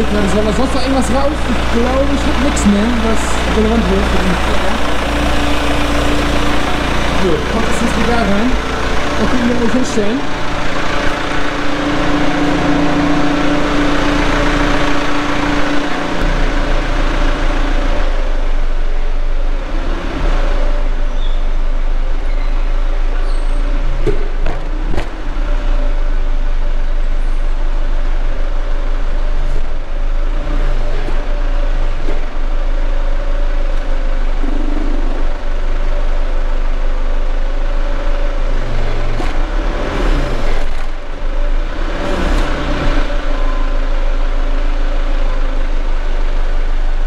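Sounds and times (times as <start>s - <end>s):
higher steady tone: 0.0s - 19.3s
forklift engine running: 0.0s - 47.0s.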